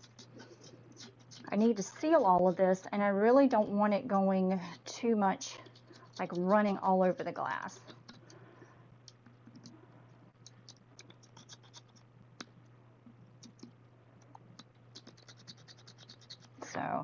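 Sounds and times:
small tool scratching on glass: 0:00.0 - 0:02.9, 0:11.0 - 0:12.0, 0:14.9 - 0:16.6.

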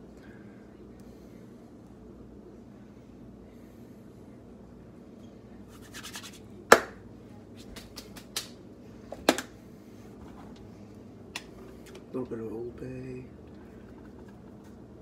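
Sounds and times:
hands brushing and slapping together: 0:05.7 - 0:06.9, 0:07.5 - 0:08.6.

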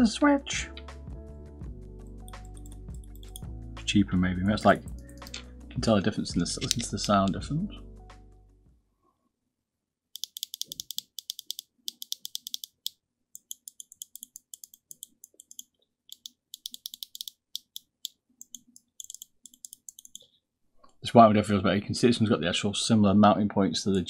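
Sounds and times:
mouse micro switches clicking: 0:06.6 - 0:07.2, 0:10.2 - 0:20.2.

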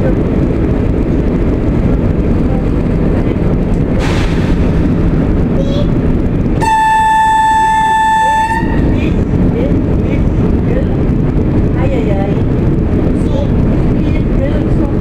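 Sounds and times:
railbus diesel engine droning: 0:00.0 - 0:15.0
train horn blast: 0:06.6 - 0:09.2.

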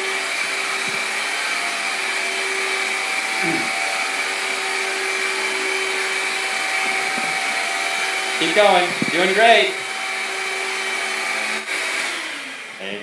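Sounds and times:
vacuum cleaner motor whine: 0:00.0 - 0:13.0.

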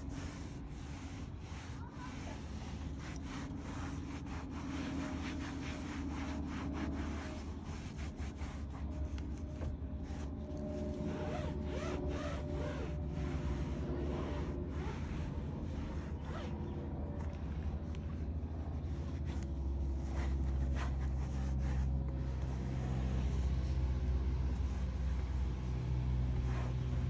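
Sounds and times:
towel rubbing plastic panel: 0:00.0 - 0:16.7.

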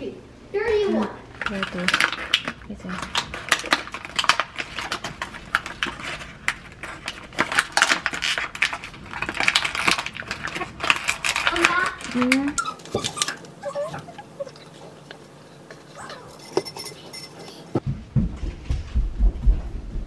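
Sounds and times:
paper wrapper crackling: 0:01.4 - 0:13.5.

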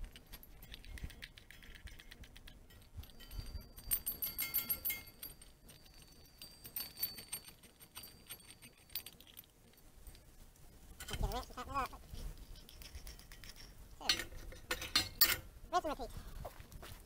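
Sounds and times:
metal bolts and nuts clinking: 0:00.2 - 0:11.6, 0:12.5 - 0:15.5.

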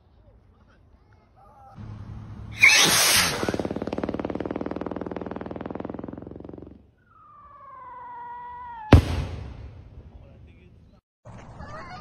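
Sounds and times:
firework whistle sliding down: 0:02.5 - 0:03.6
firework buzzing stutter: 0:02.5 - 0:06.9
firework sharp bang: 0:08.9 - 0:09.9.

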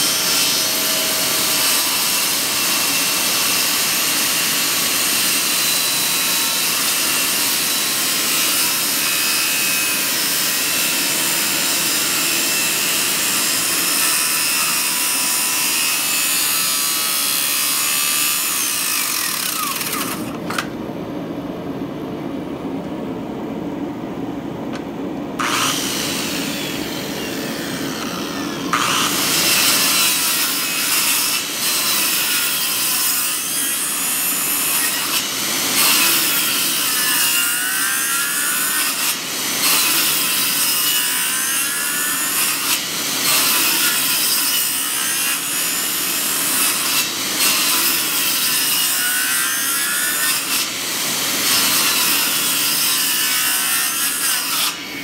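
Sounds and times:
circular saw cutting wood: 0:00.0 - 0:20.4, 0:25.4 - 0:55.0.

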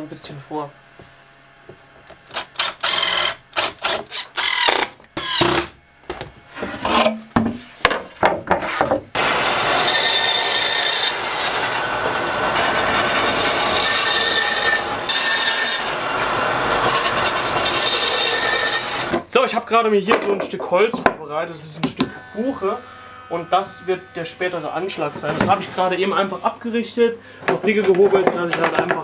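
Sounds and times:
band saw running: 0:00.0 - 0:07.1, 0:09.1 - 0:19.4, 0:21.3 - 0:27.2
cordless drill bursts: 0:02.3 - 0:05.7.

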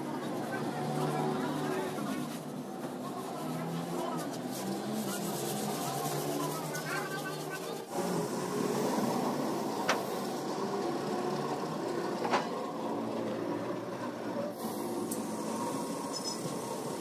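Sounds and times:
workshop machinery hum: 0:00.0 - 0:17.0.

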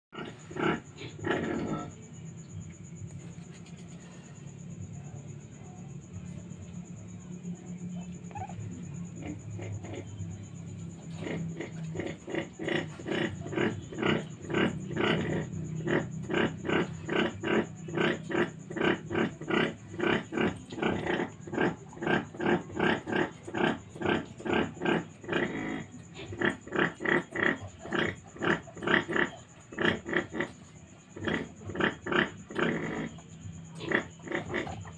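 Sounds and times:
piglet grunting: 0:00.2 - 0:01.9, 0:10.9 - 0:34.9.

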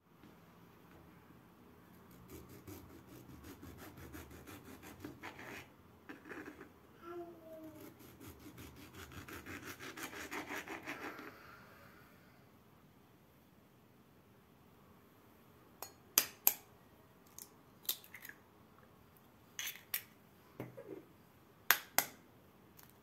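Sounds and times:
knife sawing through tomato: 0:02.1 - 0:06.7, 0:07.8 - 0:11.3.

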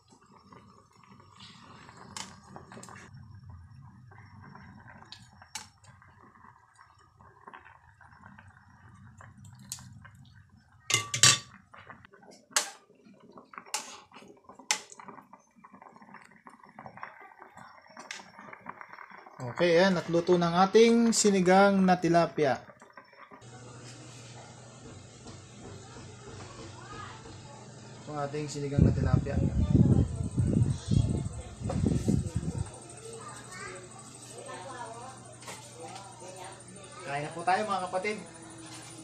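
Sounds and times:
ladle clinking against pot: 0:10.9 - 0:11.5.

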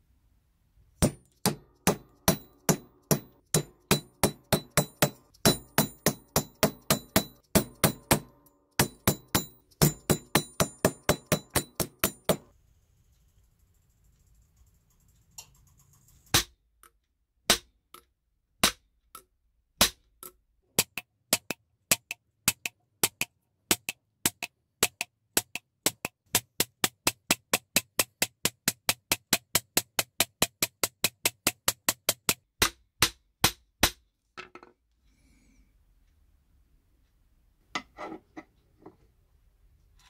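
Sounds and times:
hammer striking metal: 0:01.0 - 0:12.5.

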